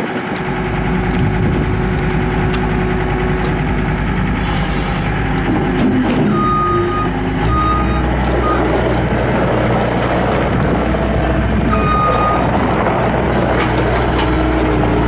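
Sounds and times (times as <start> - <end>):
diesel engine running under load: 0.0 - 15.0
backup alarm beeps: 6.3 - 8.7, 11.7 - 12.5.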